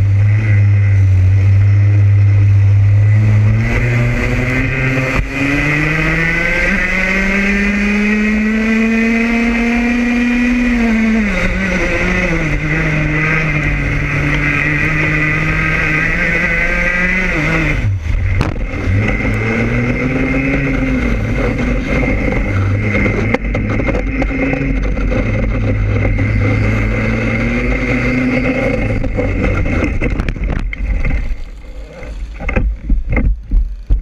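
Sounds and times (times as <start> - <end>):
kart engine running: 0.0 - 34.0
wind noise: 0.0 - 34.0
thumps: 17.7 - 34.0.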